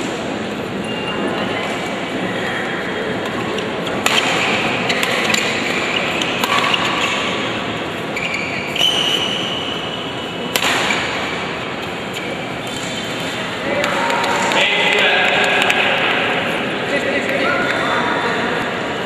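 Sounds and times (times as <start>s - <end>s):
hall background noise: 0.0s - 19.0s
shoes squeaking on court: 3.5s - 11.1s, 11.7s - 14.1s
racket hitting shuttlecock: 3.6s - 7.6s, 10.5s - 16.3s.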